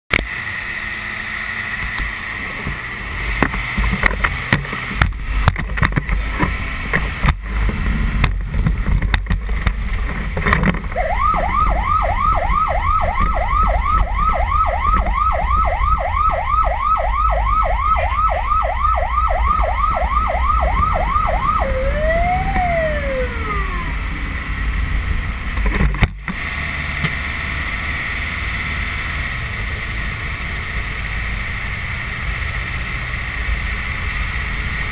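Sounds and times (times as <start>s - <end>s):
low engine rumble: 1.8s - 33.5s
fire truck siren yelping: 11.0s - 24.4s.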